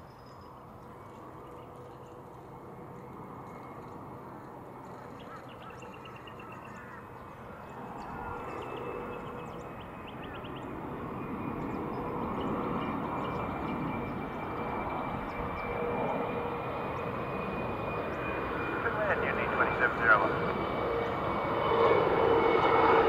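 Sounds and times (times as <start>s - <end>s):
birds chirping: 0.0s - 21.3s
jet airliner roar: 0.0s - 23.0s.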